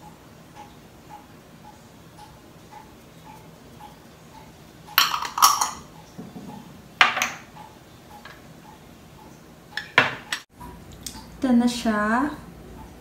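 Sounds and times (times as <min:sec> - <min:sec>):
faint regular ticking: 0:00.0 - 0:05.0, 0:07.5 - 0:11.4
glass jars clinking: 0:05.0 - 0:07.5, 0:09.8 - 0:10.5.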